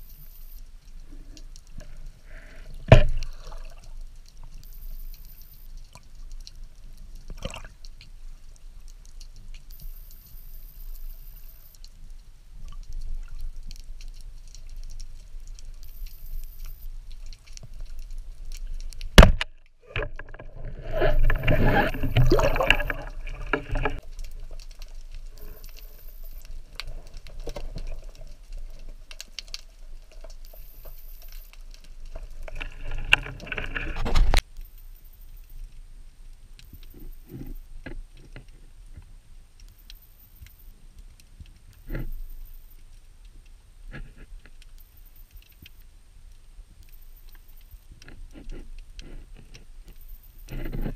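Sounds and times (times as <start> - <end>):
faint clicks: 0.0 - 35.8, 36.6 - 50.9
churning water: 19.9 - 24.0.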